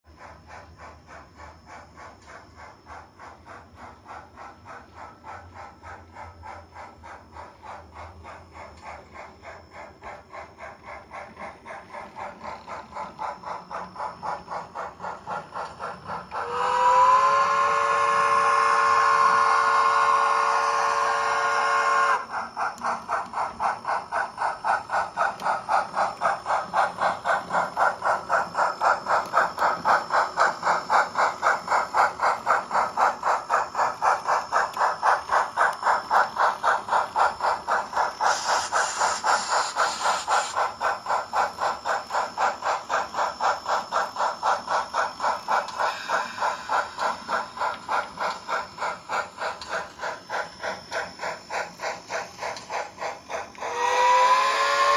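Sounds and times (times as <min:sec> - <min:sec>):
steam locomotive exhaust chuffs: 0:00.0 - 0:54.9
steam hiss: 0:00.2 - 0:54.9
steam locomotive chime whistle: 0:16.4 - 0:22.3, 0:53.6 - 0:54.9.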